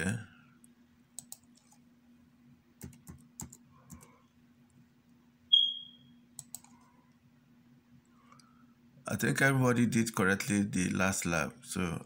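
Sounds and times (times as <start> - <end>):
faint low hum: 0.0 - 12.0
computer key clicks: 6.4 - 6.8
mouse clicks: 6.4 - 6.8.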